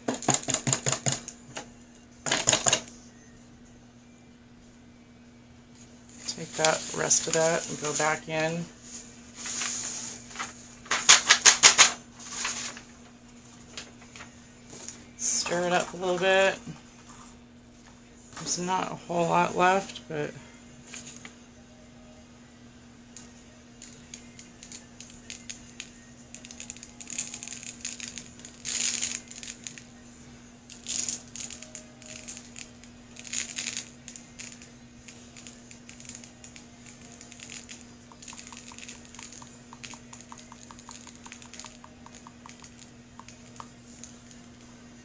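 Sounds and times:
glitter scattering and rustling: 33.2 - 44.6.

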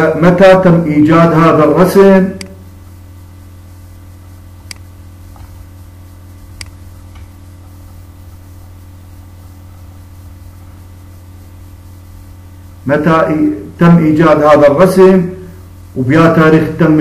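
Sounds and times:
low electrical hum: 0.0 - 17.0
computer mouse clicks: 4.6 - 5.6, 6.6 - 7.4.

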